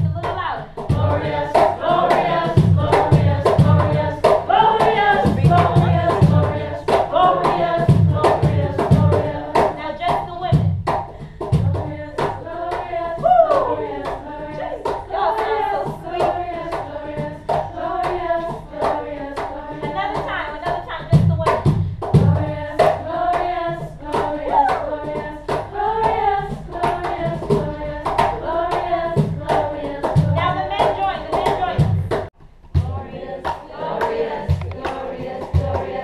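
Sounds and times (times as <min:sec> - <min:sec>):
voices singing together: 0:00.0 - 0:10.6, 0:11.4 - 0:36.0
low drum beats: 0:00.0 - 0:33.2
hand clapping: 0:24.2 - 0:32.3, 0:33.4 - 0:36.0.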